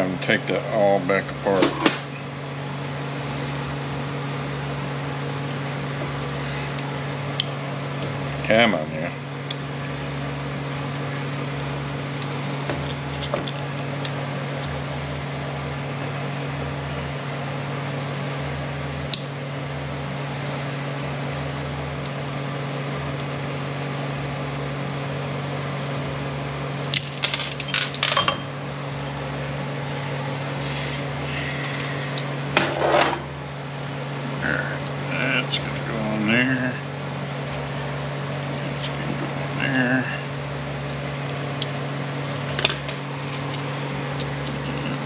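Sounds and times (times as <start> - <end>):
steady background hum: 0.0 - 45.0
metal gears clinking: 26.9 - 28.5.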